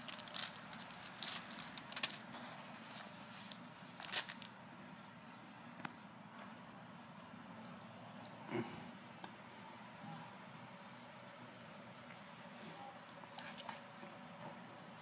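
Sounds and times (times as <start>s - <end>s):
packaging crackling: 0.0s - 4.5s.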